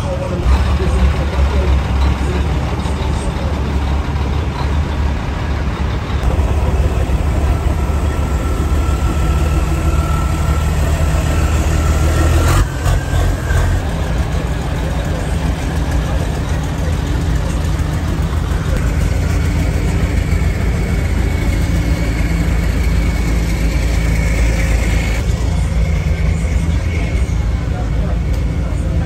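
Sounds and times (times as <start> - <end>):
truck engine idling: 0.0 - 29.0.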